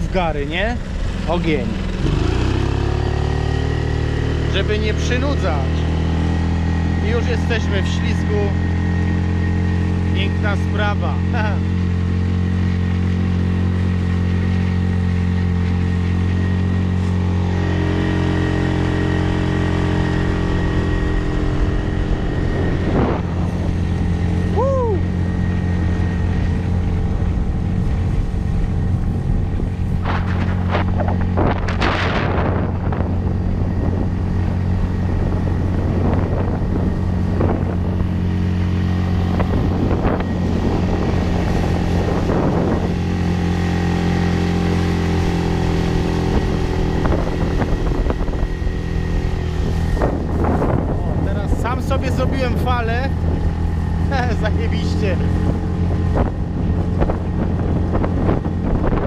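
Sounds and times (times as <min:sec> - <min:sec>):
outboard motor running: 0:00.0 - 0:59.0
water splashing against hull: 0:11.7 - 0:51.3.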